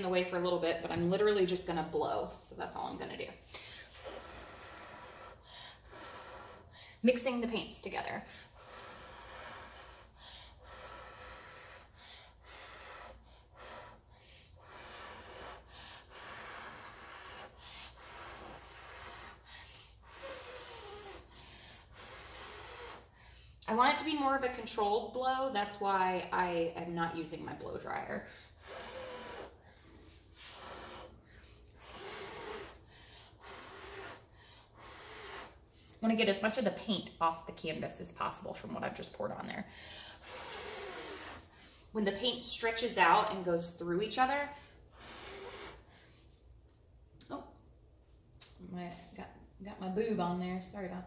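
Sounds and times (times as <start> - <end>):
person blowing breathily: 3.4 - 7.0, 8.3 - 23.6, 28.3 - 35.8, 39.8 - 41.9, 44.6 - 46.4.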